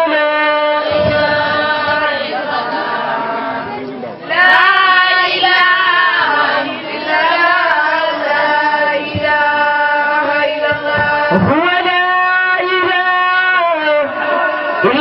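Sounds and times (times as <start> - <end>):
woman chanting: 4.4 - 11.4.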